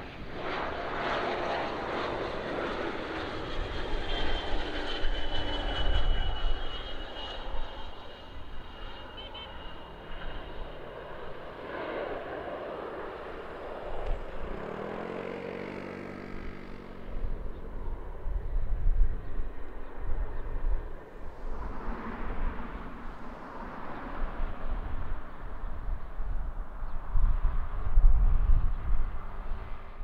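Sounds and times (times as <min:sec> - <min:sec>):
airliner engine noise: 0:00.0 - 0:30.0
wind buffeting microphone: 0:12.2 - 0:30.0.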